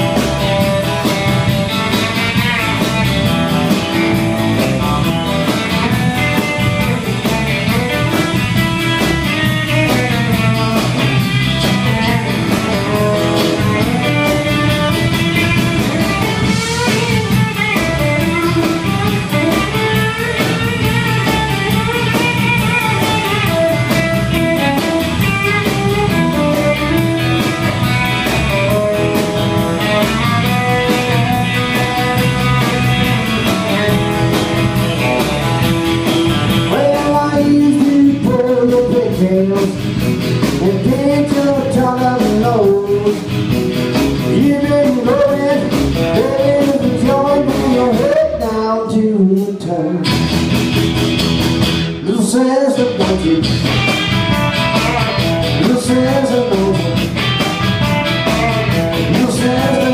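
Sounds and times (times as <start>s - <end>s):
live rock band playing: 0.0s - 59.9s
man singing: 36.6s - 43.3s, 44.2s - 50.2s, 52.0s - 53.8s, 54.9s - 57.2s, 58.9s - 59.9s.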